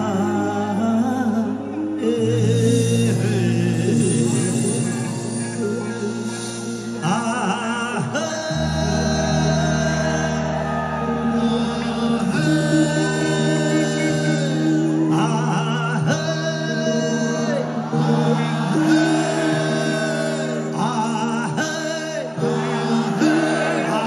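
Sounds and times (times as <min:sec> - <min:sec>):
folk-rock band playing: 0:00.0 - 0:24.0
keyboard chords: 0:00.0 - 0:24.0
man singing: 0:00.0 - 0:24.0
deep bass notes: 0:08.1 - 0:20.8.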